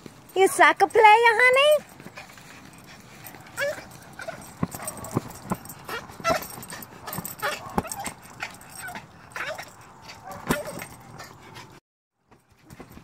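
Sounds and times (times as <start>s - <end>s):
small dog yipping: 3.2s - 10.9s.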